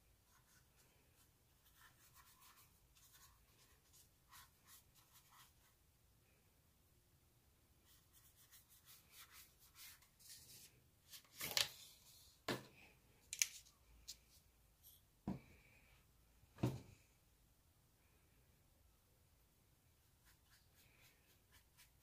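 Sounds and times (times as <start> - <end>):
paintbrush scratching on paper: 0.3 - 5.8, 7.8 - 10.7, 20.1 - 22.0.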